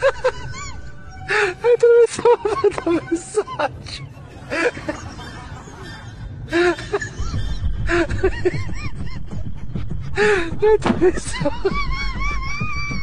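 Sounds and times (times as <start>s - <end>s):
person laughing: 0.0s - 13.0s
low rumble: 6.3s - 13.0s.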